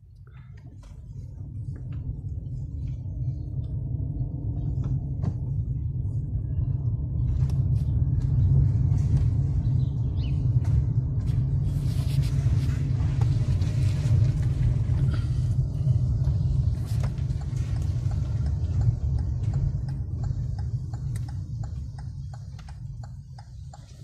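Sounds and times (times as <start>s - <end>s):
car engine and road rumble: 0.0s - 24.0s
faint light ticking: 17.0s - 24.0s.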